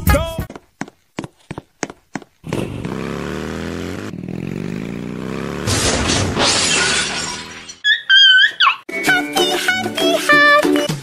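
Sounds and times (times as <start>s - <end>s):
motorcycle engine accelerating: 2.4s - 6.5s
crash with shattering: 5.6s - 7.8s.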